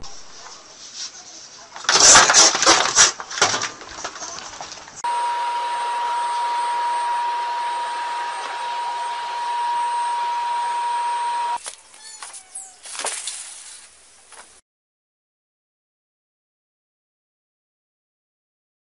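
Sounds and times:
machine rush with high whine: 5.0s - 11.6s.

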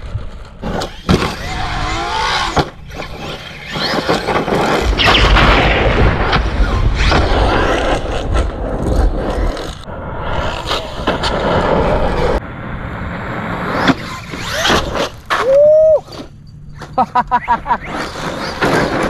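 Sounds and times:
wind rumble on microphone: 0.0s - 0.7s
tyres on gravel: 0.3s - 5.6s
toy truck electric motor whining: 0.6s - 4.9s, 14.0s - 15.2s.

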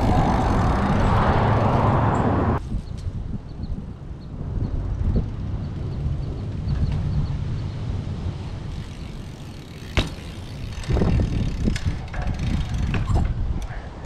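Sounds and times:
bike thuds and rattles: 0.0s - 2.2s, 8.7s - 13.8s
wind buffeting microphone: 0.0s - 14.0s
bike knock: 9.7s - 10.9s.

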